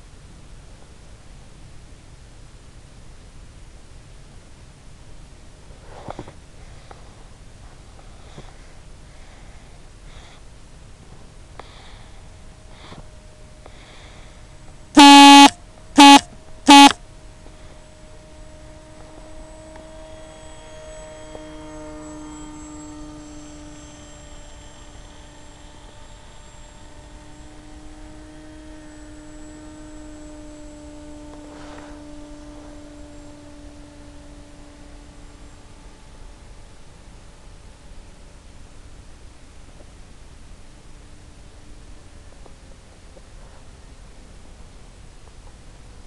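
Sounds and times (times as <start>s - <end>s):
steady hum: 6.6s - 42.8s
electronic beeps: 15.0s - 17.0s.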